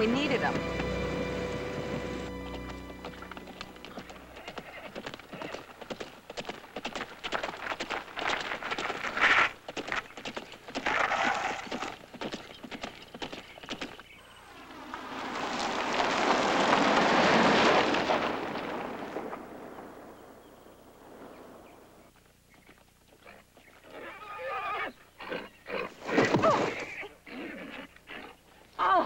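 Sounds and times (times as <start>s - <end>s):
car passing on dirt road: 0.0s - 10.0s, 13.2s - 22.1s
horse hooves: 0.0s - 24.4s
horse whinny: 4.0s - 5.7s, 23.8s - 28.3s.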